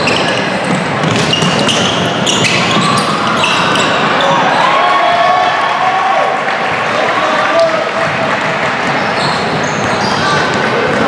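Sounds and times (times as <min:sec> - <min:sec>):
basketball bouncing: 0:00.0 - 0:04.0, 0:08.8 - 0:11.0
shoe squeaks on gym floor: 0:00.0 - 0:04.4, 0:09.0 - 0:10.6.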